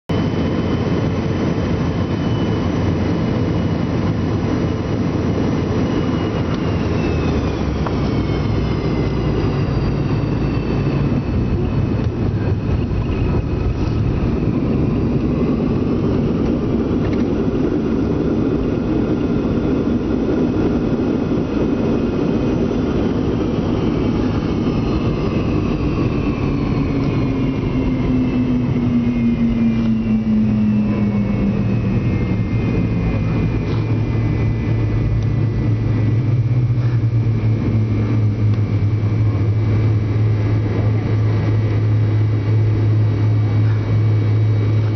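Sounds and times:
falling engine whine: 0.1 - 44.9
jet engine and air rush: 0.1 - 44.9.

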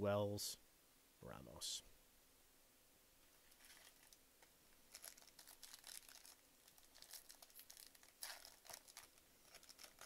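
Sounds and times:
foil wrapper crinkling: 3.5 - 4.2, 4.9 - 10.0.

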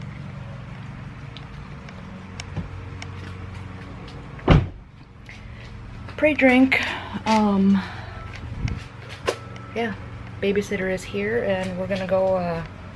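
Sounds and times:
low mechanical hum: 0.0 - 12.9
loud thump: 4.4 - 4.8.

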